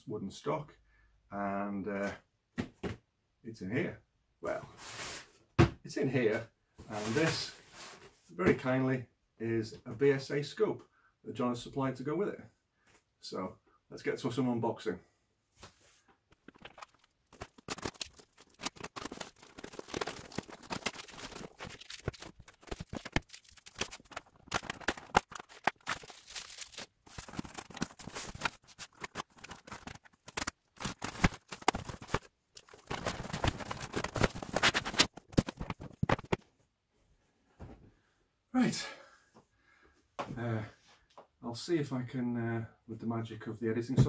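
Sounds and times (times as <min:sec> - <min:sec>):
cardboard rustling and tearing: 0:16.4 - 0:36.4.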